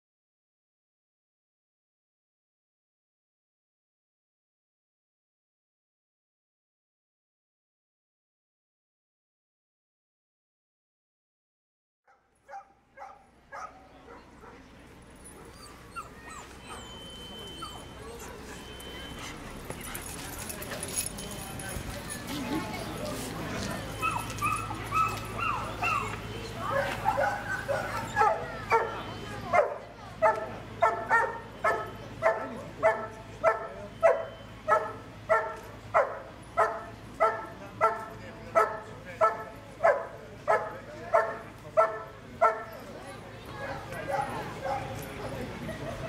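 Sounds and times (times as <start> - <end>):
dog barking: 12.1 - 14.6, 24.0 - 42.7, 44.1 - 45.0
dog whining and yelping: 15.2 - 20.1, 24.0 - 26.2.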